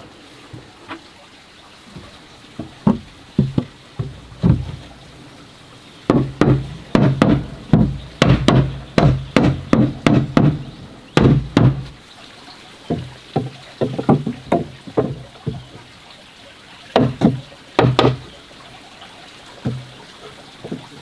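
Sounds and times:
hammer nailing wooden boards: 6.1 - 12.0, 17.0 - 18.3.

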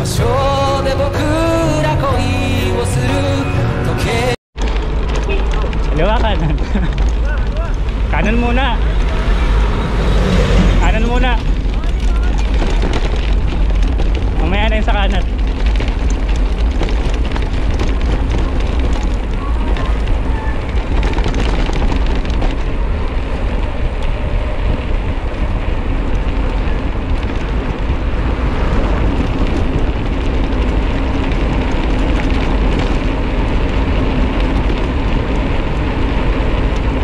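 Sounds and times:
wind rushing over microphone: 4.6 - 37.0.

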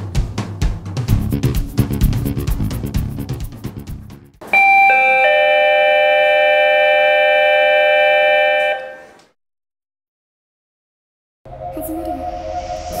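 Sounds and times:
drum beat: 0.0 - 4.3
electronic chime: 4.5 - 9.1.

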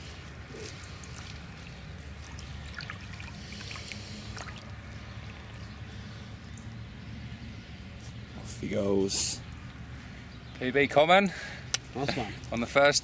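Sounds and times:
lake water splashing at the bank: 0.5 - 6.0
fish swimming away splashing: 0.5 - 6.2.

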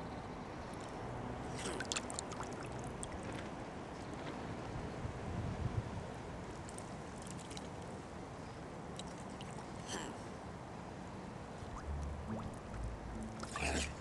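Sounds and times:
small splashes: 0.8 - 3.5, 11.7 - 14.0
water gurgling and lapping: 0.8 - 4.2, 11.6 - 14.0
low rumbles: 11.6 - 14.0.

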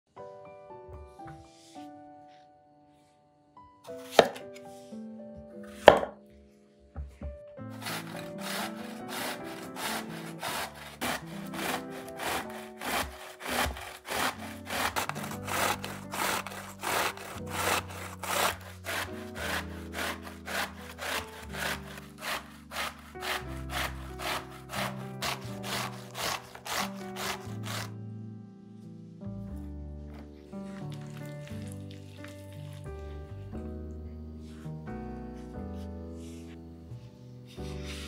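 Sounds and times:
soft background music: 0.1 - 38.0
grater rasping strokes: 7.8 - 27.9.

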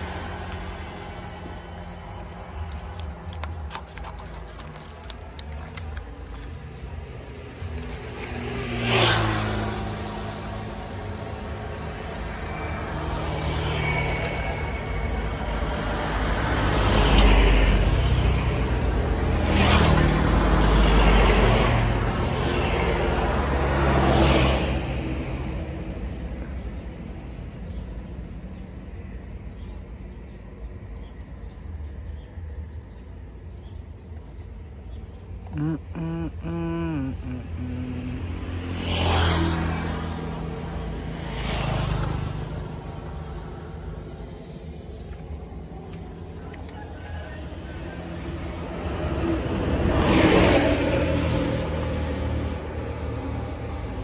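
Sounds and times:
vehicles passing by: 0.0 - 54.0
low engine hum: 32.2 - 54.0.

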